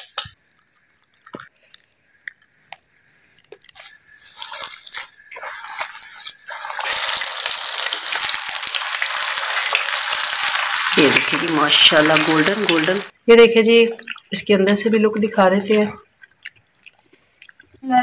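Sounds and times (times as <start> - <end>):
food frying in hot oil: 3.8 - 13.2.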